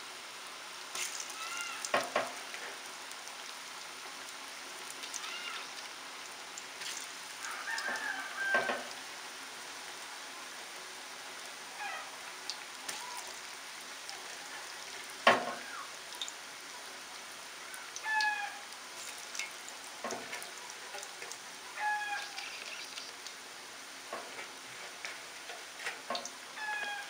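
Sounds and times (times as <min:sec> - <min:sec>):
deep-frying sizzle and bubbling: 0:00.0 - 0:27.0
animal call: 0:01.3 - 0:01.9, 0:05.2 - 0:05.7, 0:11.8 - 0:12.2, 0:17.7 - 0:18.7, 0:21.8 - 0:23.1, 0:26.6 - 0:27.0.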